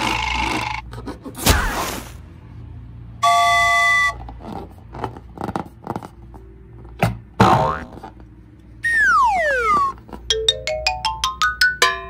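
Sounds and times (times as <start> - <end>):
cartoon swish: 1.4 - 2.2.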